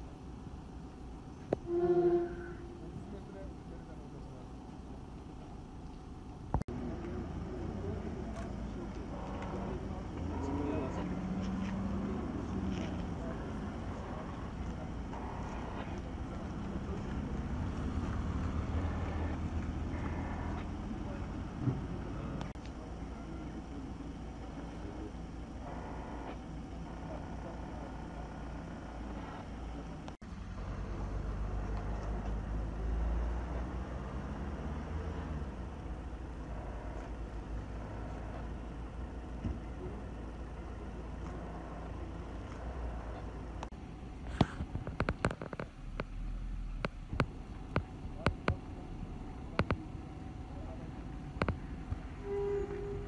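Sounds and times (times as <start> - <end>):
vehicle engines rumbling: 0.0 - 53.0
sharp clicks and knocks: 43.6 - 46.2, 46.8 - 48.6, 49.5 - 49.8.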